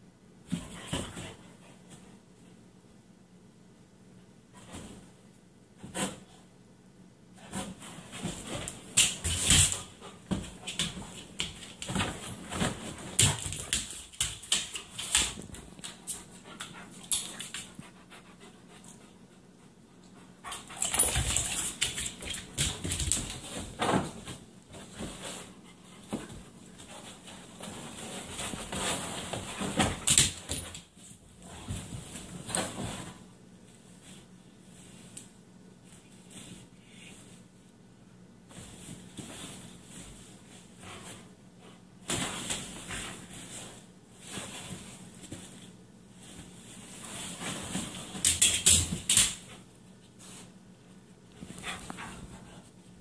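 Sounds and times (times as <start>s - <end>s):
dogs scuffling: 7.4s - 17.9s, 20.4s - 35.2s, 38.5s - 50.5s.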